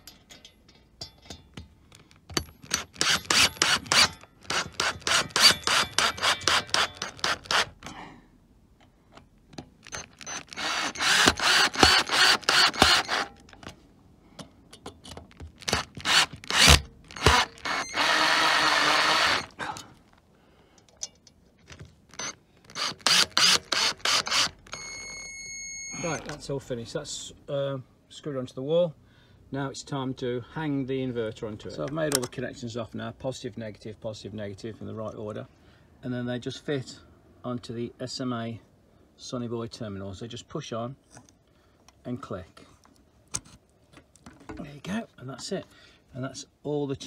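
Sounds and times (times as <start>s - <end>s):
drill clutch clicking rapidly: 2.6s - 7.8s, 9.8s - 13.3s, 15.6s - 19.5s, 22.2s - 24.8s
cordless drill running: 2.7s - 7.8s, 9.8s - 13.3s, 15.6s - 19.6s, 22.1s - 25.3s.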